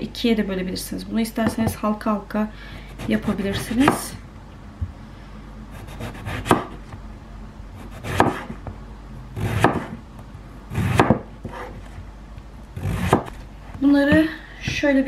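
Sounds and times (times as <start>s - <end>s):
knife slicing aubergine: 12.8s - 13.3s.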